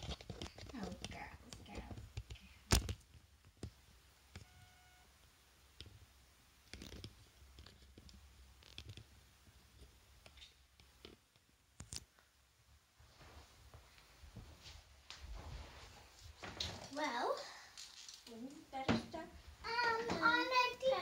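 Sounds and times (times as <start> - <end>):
faint clicks and taps: 0.0 - 4.5, 5.8 - 12.3.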